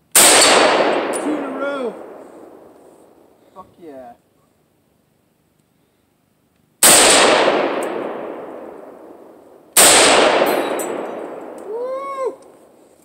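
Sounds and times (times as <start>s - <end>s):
rifle shots with long echo: 0.1s - 3.4s, 6.8s - 11.8s.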